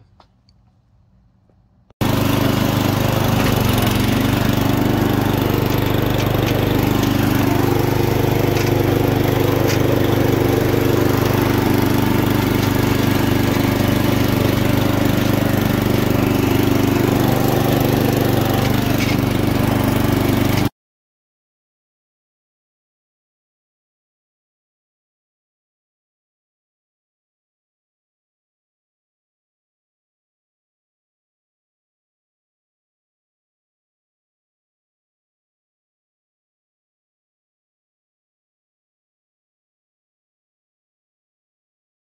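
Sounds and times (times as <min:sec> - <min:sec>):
riding mower engine running: 0:00.1 - 0:20.7.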